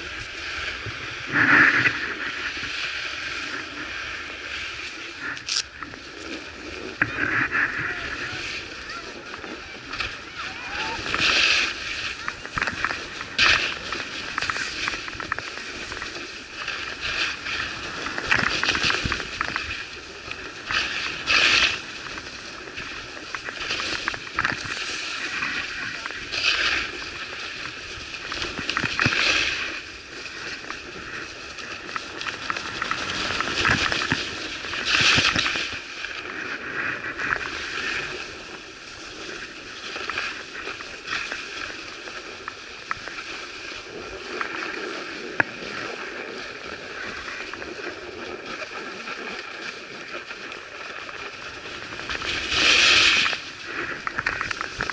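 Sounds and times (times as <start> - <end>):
skis carving on snow: 0.0 - 54.9.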